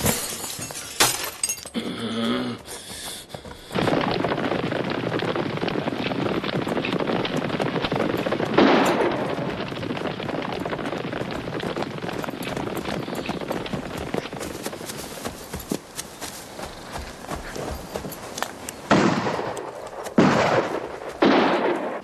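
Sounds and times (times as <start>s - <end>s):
horses galloping on dirt: 1.4s - 22.0s
loud gunshot: 18.9s - 19.6s, 20.2s - 22.0s.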